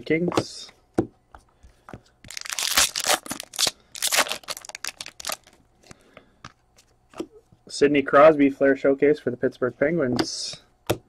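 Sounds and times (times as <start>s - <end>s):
foil wrapper crinkling and tearing: 2.3s - 5.6s.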